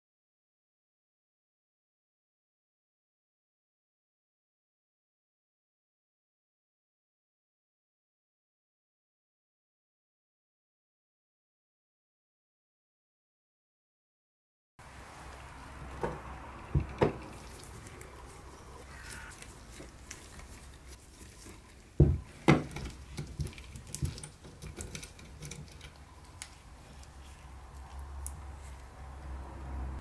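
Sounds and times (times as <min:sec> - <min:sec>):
screwdriver clicks and metal scrapes: 0:19.2 - 0:29.0.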